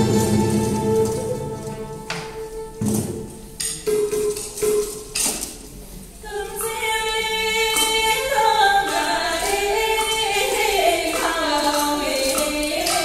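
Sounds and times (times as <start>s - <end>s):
held instrumental note: 0.0s - 5.0s
sharp percussion hits: 0.0s - 5.4s
women singing together: 6.2s - 13.0s.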